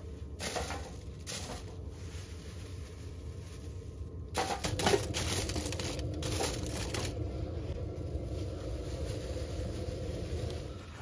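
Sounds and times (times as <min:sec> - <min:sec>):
plastic bag crinkling: 0:00.4 - 0:11.0
chestnuts knocking on foil: 0:04.4 - 0:07.1.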